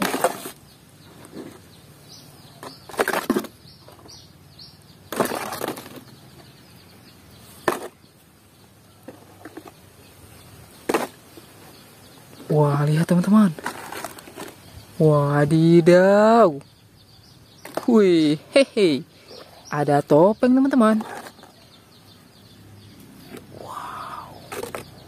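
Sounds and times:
plastic toys clattering in basket: 5.2 - 6.1.

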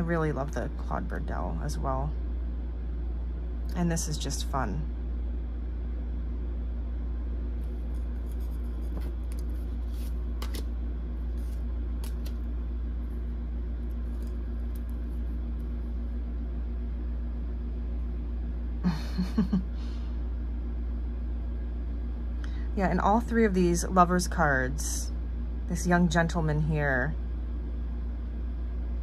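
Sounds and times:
low room hum: 0.0 - 29.0
tarot cards rustling: 7.6 - 13.2, 13.8 - 15.8.

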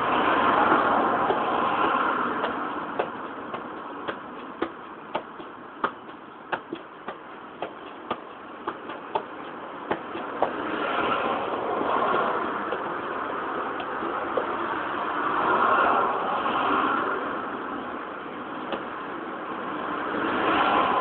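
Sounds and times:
traffic noise: 0.0 - 21.0
boot tapping football: 1.2 - 11.2, 12.0 - 13.0, 13.7 - 14.6, 18.7 - 18.9.

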